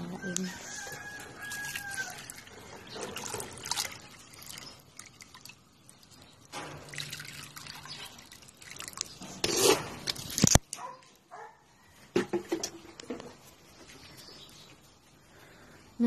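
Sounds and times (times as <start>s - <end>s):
water trickling into bowl: 0.9s - 9.4s.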